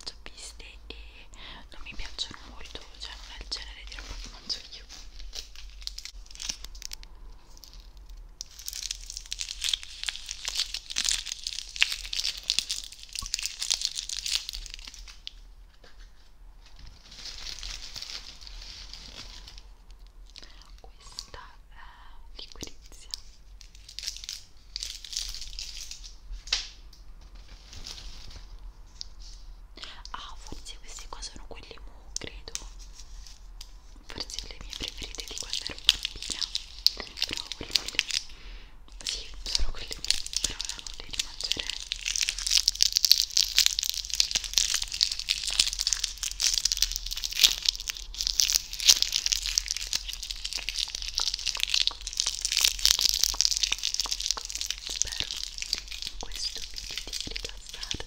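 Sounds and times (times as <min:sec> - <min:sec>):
gift bag crinkling: 0:00.0 - 0:21.5, 0:22.4 - 0:26.5, 0:27.2 - 0:58.0
candy crunching: 0:00.0 - 0:58.0
chewing sounds: 0:03.6 - 0:15.3, 0:34.1 - 0:38.4, 0:39.0 - 0:58.0.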